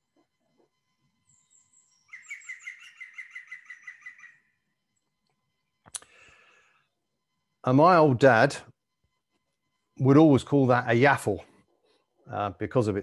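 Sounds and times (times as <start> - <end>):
woodpecker laughing call: 2.1 - 4.4.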